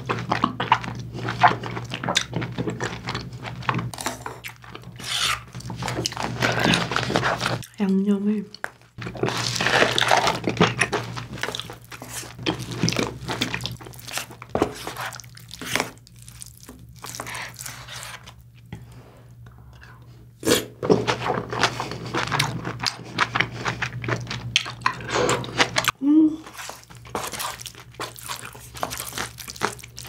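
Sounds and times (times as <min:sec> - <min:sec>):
close chewing: 0:00.0 - 0:07.8, 0:08.5 - 0:18.5, 0:20.9 - 0:30.0
wooden spoon scraping a pot: 0:02.8 - 0:07.6, 0:09.0 - 0:15.9, 0:17.1 - 0:19.0, 0:25.0 - 0:29.0.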